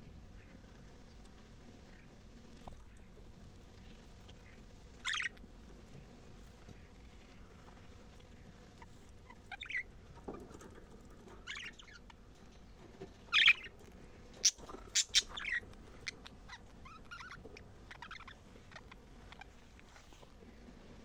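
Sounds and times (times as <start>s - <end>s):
budgerigars chattering: 5.0s - 5.4s, 9.3s - 9.9s, 13.3s - 13.7s, 14.4s - 19.6s.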